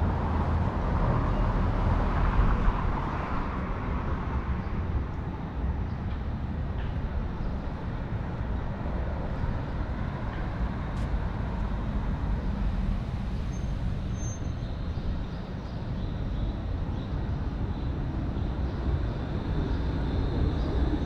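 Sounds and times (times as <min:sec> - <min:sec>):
low rumble of road traffic: 0:00.0 - 0:21.0.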